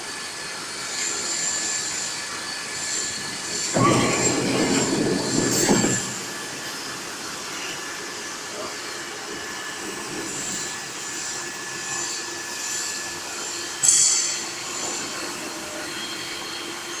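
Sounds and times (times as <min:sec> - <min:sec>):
machine mechanical drone and hiss: 0:00.0 - 0:17.0
loud high-pitched burst: 0:03.8 - 0:07.5.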